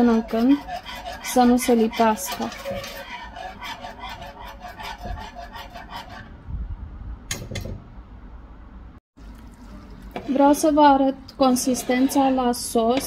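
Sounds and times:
whisk clinking against pot: 0:00.0 - 0:06.3, 0:11.4 - 0:13.0
whisk scraping pot: 0:00.0 - 0:06.4, 0:09.6 - 0:13.0.

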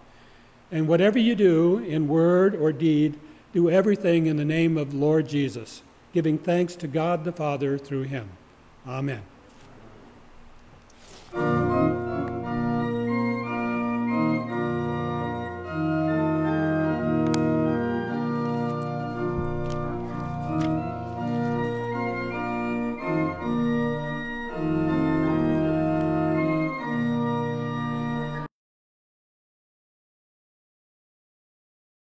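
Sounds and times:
church organ chords: 0:00.8 - 0:08.4, 0:11.3 - 0:28.5.

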